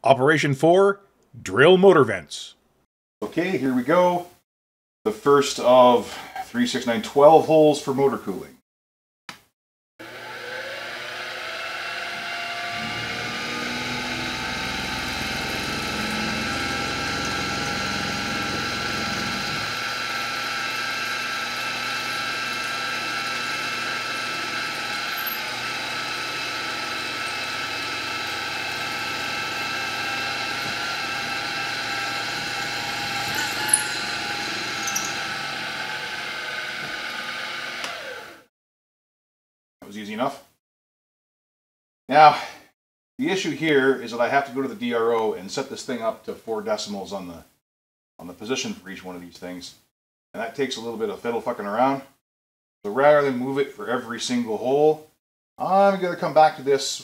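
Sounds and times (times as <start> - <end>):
milling machine motor whine: 10.0 - 38.4
drill cutting aluminium: 10.0 - 38.5.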